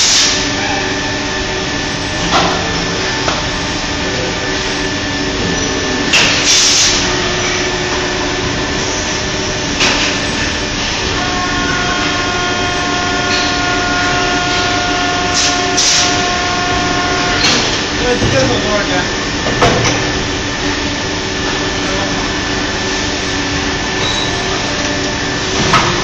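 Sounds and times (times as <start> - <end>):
factory machine noise: 0.0 - 26.0
pneumatic air hiss bursts: 6.3 - 7.0.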